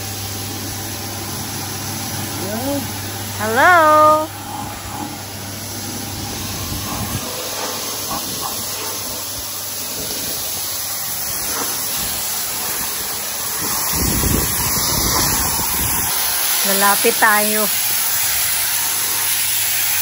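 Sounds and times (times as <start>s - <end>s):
pressure washer spraying stone: 0.0s - 20.0s.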